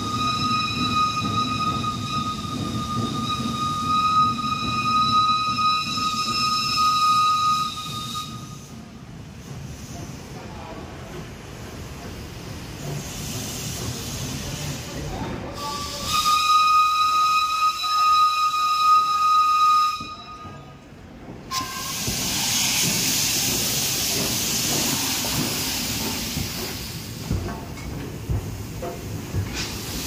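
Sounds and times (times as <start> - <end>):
steam whistle: 0.0 - 8.7, 15.6 - 20.6, 21.5 - 22.1
steam hissing: 0.0 - 19.5, 21.5 - 30.0.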